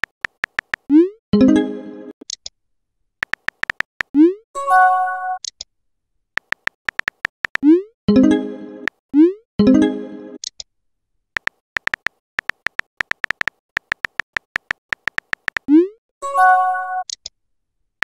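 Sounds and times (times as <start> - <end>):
phone keyboard typing clicks: 0.0 - 0.9, 3.2 - 4.2, 6.4 - 7.7, 11.4 - 15.7.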